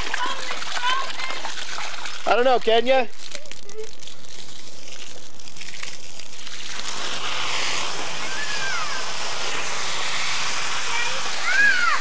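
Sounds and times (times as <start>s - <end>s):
water splashing in pool: 0.0s - 2.8s.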